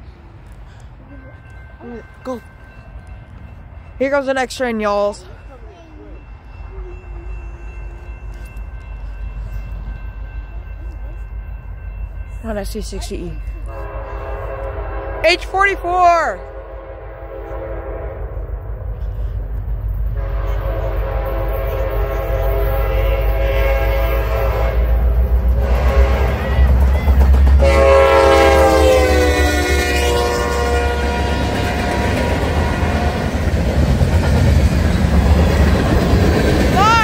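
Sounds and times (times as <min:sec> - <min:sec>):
train engine and wheels rumbling: 0:00.0 - 0:37.0
locomotive air horn: 0:13.6 - 0:18.5, 0:20.2 - 0:26.6, 0:27.6 - 0:33.3.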